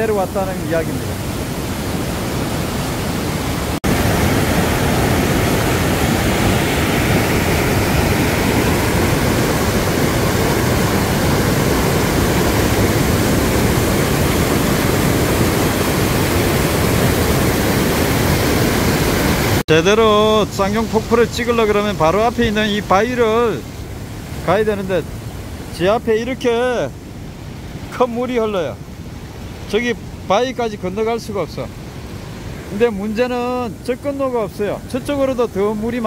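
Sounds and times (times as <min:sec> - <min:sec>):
stream rushing over boulders: 0:00.0 - 0:36.0.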